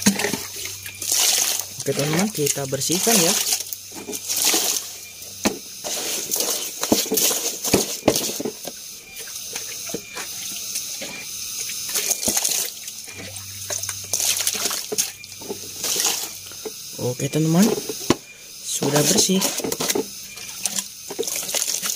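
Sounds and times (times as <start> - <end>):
water spraying on plastic: 0.0 - 16.7, 18.7 - 21.9.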